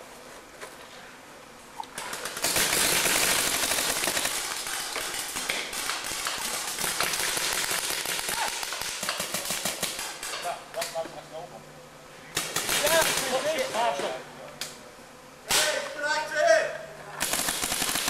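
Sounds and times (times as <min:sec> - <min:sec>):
paintball markers firing: 0:01.9 - 0:11.0, 0:17.2 - 0:18.0.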